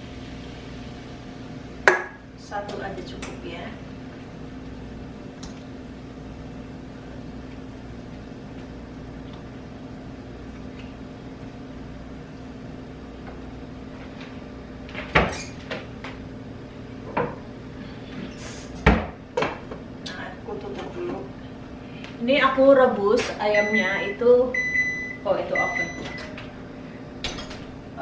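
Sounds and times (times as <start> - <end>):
low kitchen hum: 0.0 - 28.0.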